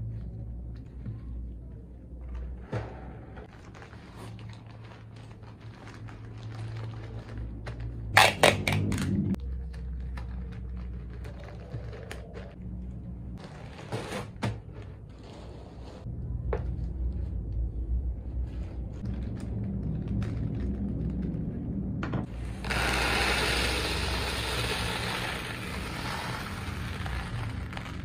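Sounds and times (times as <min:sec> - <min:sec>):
plastic bag crinkling: 0:03.5 - 0:12.6
packing tape pulled from dispenser: 0:22.5 - 0:28.0.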